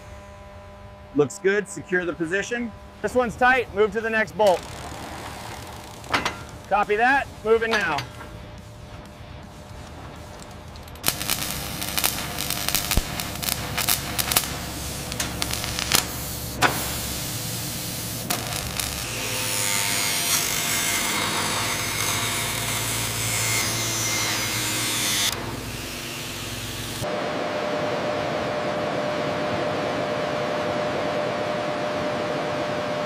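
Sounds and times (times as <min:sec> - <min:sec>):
welder hissing crackle: 0:03.0 - 0:27.1.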